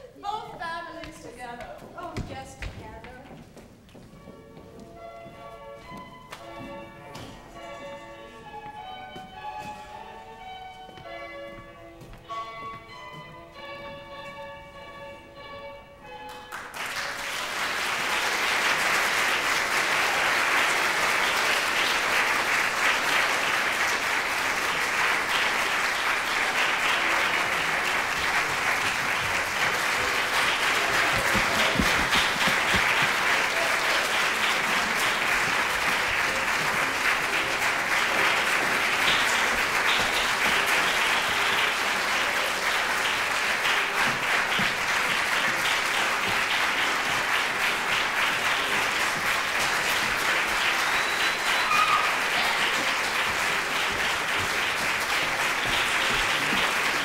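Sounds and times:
audience applauding: 16.3 - 57.0.

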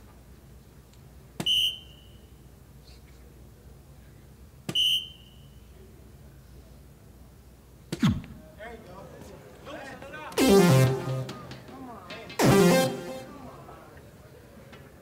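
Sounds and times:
short high electronic beep: 10.4 - 11.5, 12.4 - 13.3
darts hitting electronic dartboard: 10.4 - 11.7, 12.3 - 13.3.

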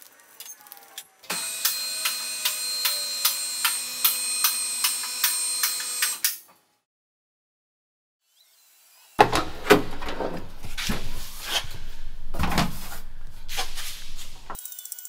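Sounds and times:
hydraulic pump humming: 9.2 - 14.6.

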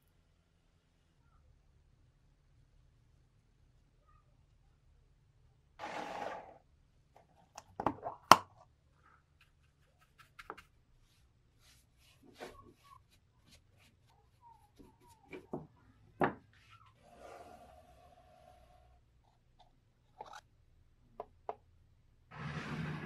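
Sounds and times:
scratchy brush strokes: 9.3 - 15.3.

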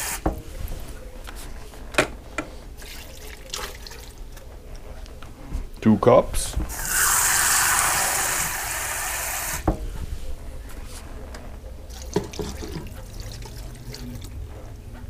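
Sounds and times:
water running loudly: 6.7 - 9.7.

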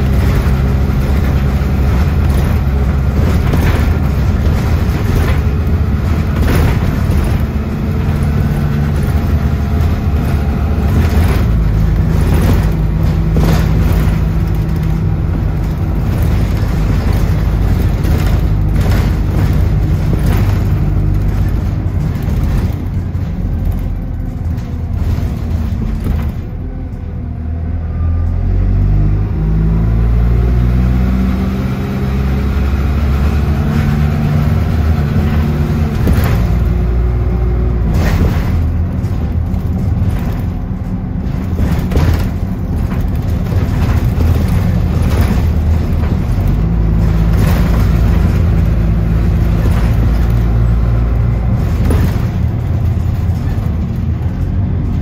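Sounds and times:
bus body knocks and rattles: 0.0 - 27.8, 30.2 - 55.0
bus engine accelerating: 0.0 - 55.0.

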